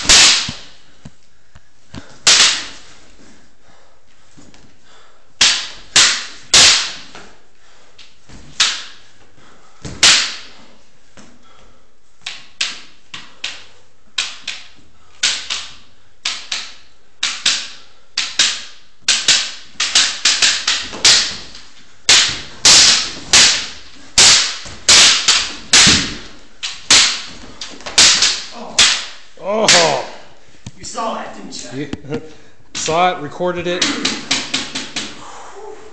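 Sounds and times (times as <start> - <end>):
wooden swords clacking: 0.0 - 0.8, 1.9 - 2.9, 5.4 - 7.4, 8.0 - 9.2, 9.8 - 11.4, 12.2 - 30.3, 33.7 - 35.2.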